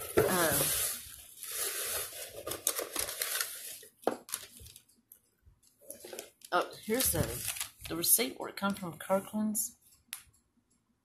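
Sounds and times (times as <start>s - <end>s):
plastic bag and paper rustling: 0.0s - 4.9s, 5.8s - 8.1s.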